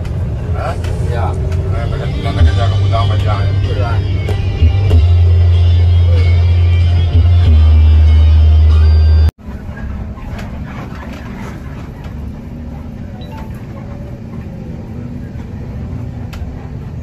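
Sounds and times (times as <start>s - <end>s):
bus engine low rumble: 0.0s - 17.0s
music with heavy bass line: 2.4s - 9.3s.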